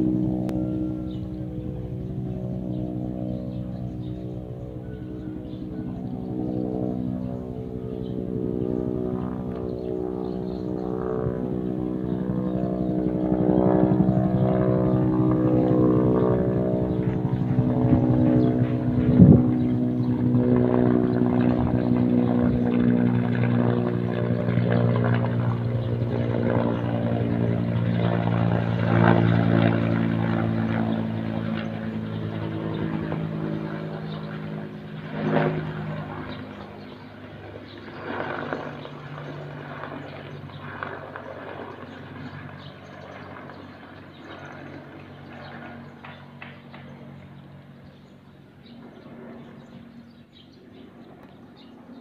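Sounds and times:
helicopter rotor beating overhead: 0:00.0 - 0:52.0.

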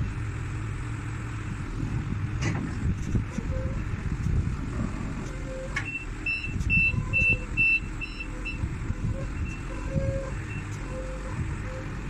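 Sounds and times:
diesel forklift engine running: 0:00.0 - 0:12.0
reversing alarm beeps: 0:05.8 - 0:11.2.

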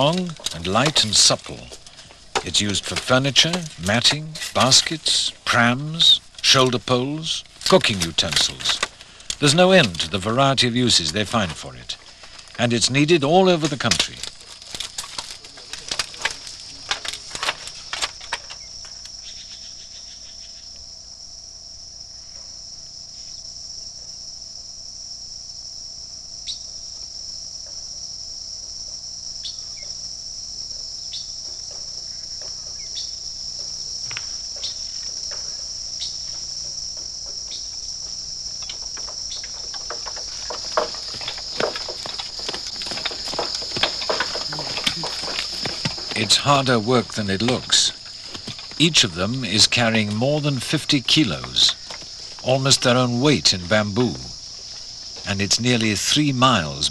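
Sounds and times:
knives knocking on bamboo poles: 0:00.0 - 0:05.6, 0:33.6 - 0:53.1
insects droning: 0:00.0 - 0:56.9.

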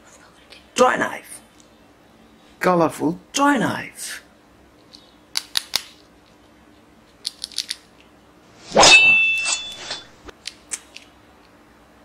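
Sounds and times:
toy knife swish: 0:08.6 - 0:10.3.

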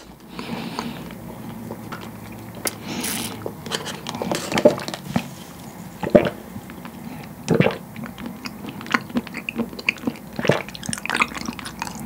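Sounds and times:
wet mouth clicks of chewing: 0:06.0 - 0:12.0.

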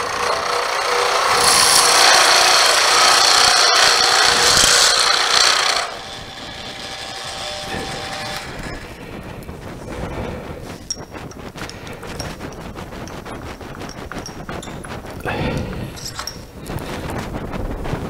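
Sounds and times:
drill bit rasping into wood: 0:00.0 - 0:09.0
lathe running: 0:00.0 - 0:16.6.

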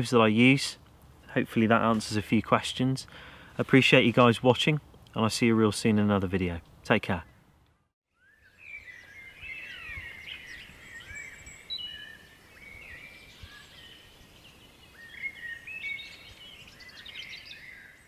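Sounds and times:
faint outdoor background: 0:00.0 - 0:18.0
small birds chirping: 0:07.1 - 0:18.0.

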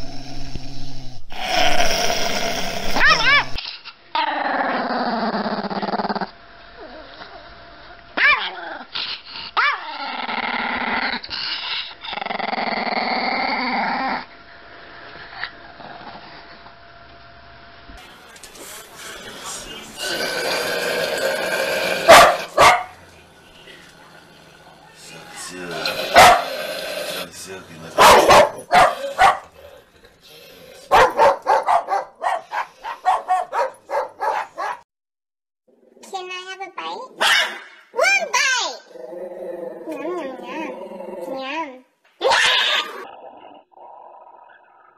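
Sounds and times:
dog growling: 0:00.0 - 0:03.6, 0:04.2 - 0:07.5, 0:08.2 - 0:14.3, 0:18.5 - 0:34.8, 0:38.8 - 0:44.9
dog barking: 0:22.1 - 0:23.0, 0:26.1 - 0:26.6, 0:28.0 - 0:29.5, 0:30.9 - 0:34.8, 0:37.2 - 0:38.2.

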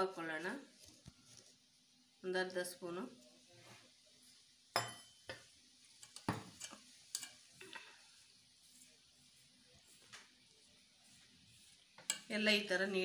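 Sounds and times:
clinks against metal bowl: 0:04.8 - 0:05.4
flour rustling: 0:06.8 - 0:13.0.

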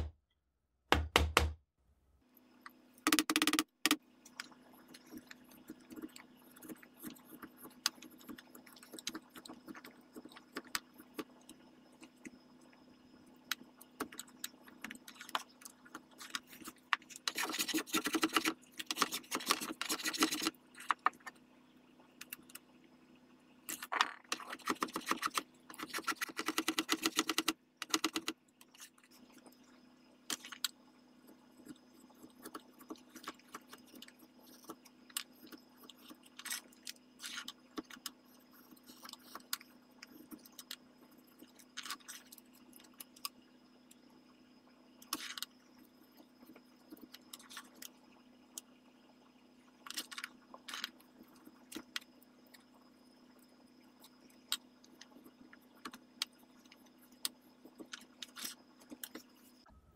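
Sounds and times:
tools tapping and clicking: 0:03.1 - 0:04.0.

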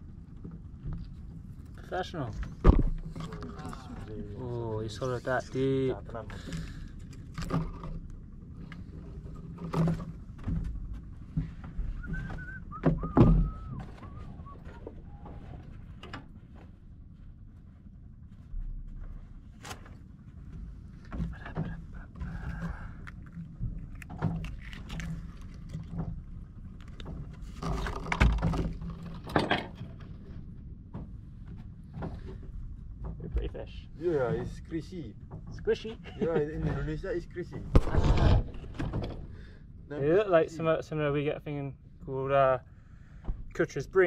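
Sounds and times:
clicks and knocks against wooden hull: 0:00.0 - 0:04.2, 0:06.0 - 0:17.4, 0:18.4 - 0:33.9, 0:35.2 - 0:36.0, 0:43.2 - 0:43.6
low steady rumble: 0:00.0 - 0:44.0
heavy thump: 0:02.6 - 0:03.0, 0:37.5 - 0:39.6
thin whistling tones: 0:11.9 - 0:15.5.

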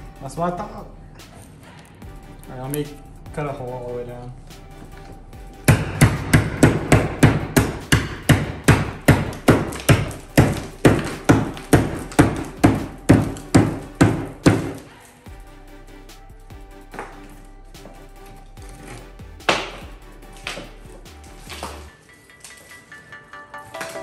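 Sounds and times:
hammer striking drywall: 0:05.7 - 0:14.9, 0:18.8 - 0:20.8.

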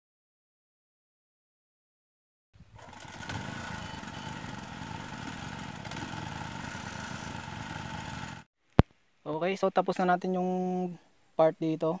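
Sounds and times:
small engine running: 0:02.6 - 0:08.5.

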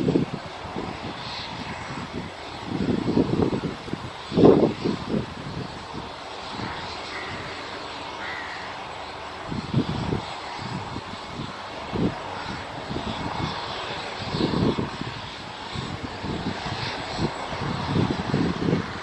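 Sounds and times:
airliner engine noise: 0:00.0 - 0:19.0
wind buffeting microphone: 0:00.0 - 0:19.0.

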